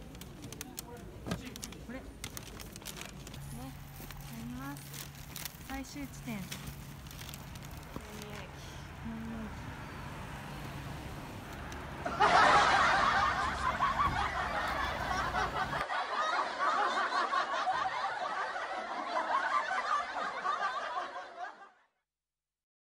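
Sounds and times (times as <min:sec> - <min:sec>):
people laughing: 0:11.9 - 0:21.9.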